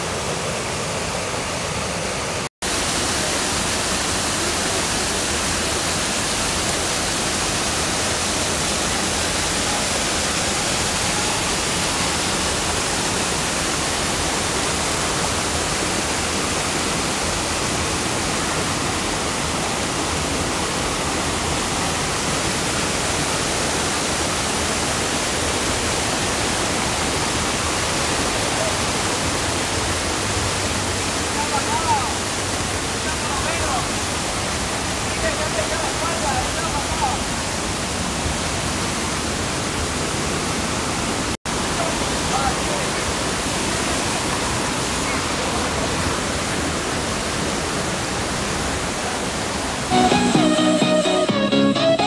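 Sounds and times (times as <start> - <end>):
waterfall rushing: 0.0 - 52.0.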